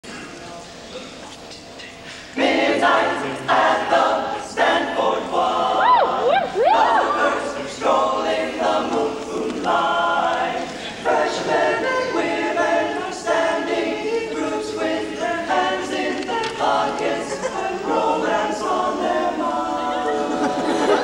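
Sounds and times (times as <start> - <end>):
male a cappella group singing: 2.3 - 21.0.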